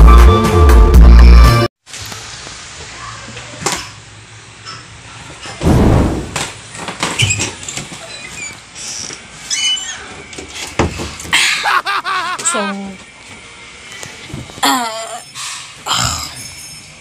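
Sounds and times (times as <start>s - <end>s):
loud brief rush of noise: 5.6s - 6.4s.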